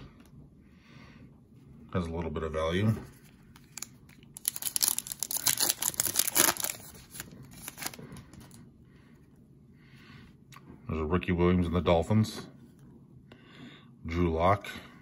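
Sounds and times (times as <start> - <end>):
foil wrapper tearing and crinkling: 3.6 - 8.2.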